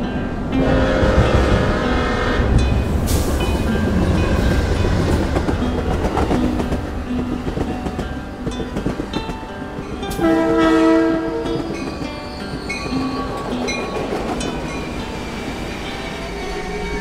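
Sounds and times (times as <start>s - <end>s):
train rumbling: 0.0s - 17.0s
locomotive air horn: 0.6s - 2.6s, 10.2s - 11.6s.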